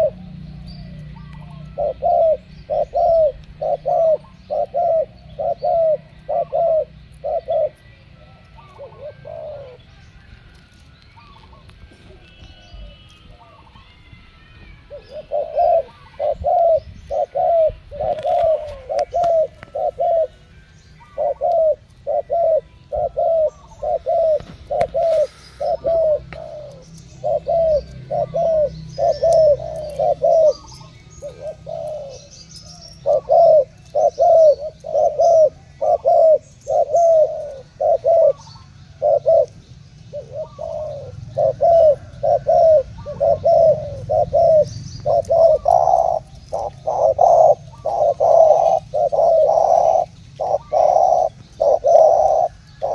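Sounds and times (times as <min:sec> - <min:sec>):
doves cooing: 0:00.0 - 0:52.9.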